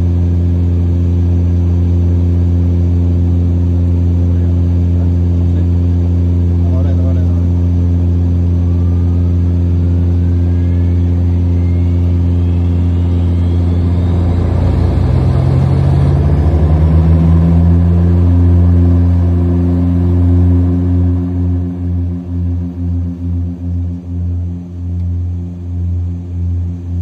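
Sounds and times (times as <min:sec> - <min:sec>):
aircraft engine droning: 0:00.0 - 0:27.0
propeller beating hum: 0:00.0 - 0:27.0
turbine whine rising in pitch: 0:00.0 - 0:27.0.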